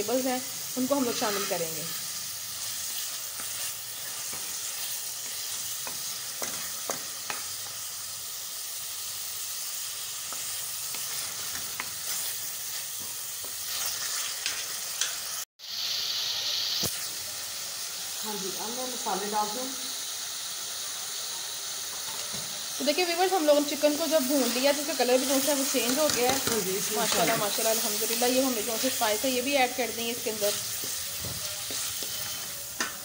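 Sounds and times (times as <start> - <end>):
chicken sizzling in hot oil: 0.0 - 33.0
wooden spoon scraping a pan: 30.3 - 33.0.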